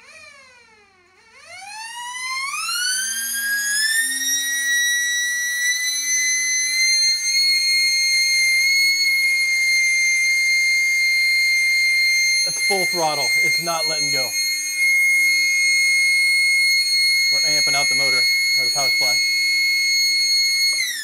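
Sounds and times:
siren winding up to high wail: 0:00.0 - 0:21.0.

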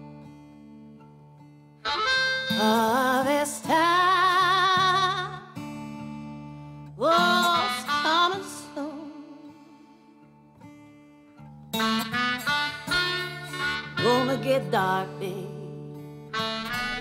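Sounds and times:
plucked string accompaniment: 0:01.8 - 0:02.9
person singing long notes: 0:07.0 - 0:09.7, 0:13.3 - 0:15.7.

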